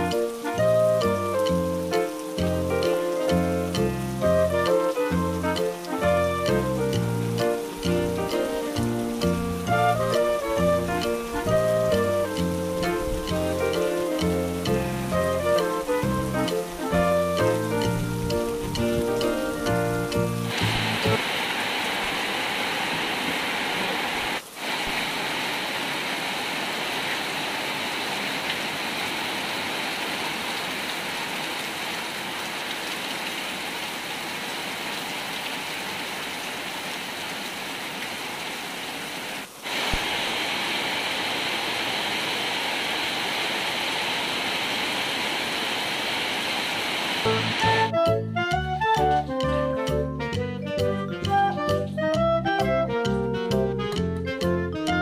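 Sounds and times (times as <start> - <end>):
heavy rain pouring: 0.0 - 55.0.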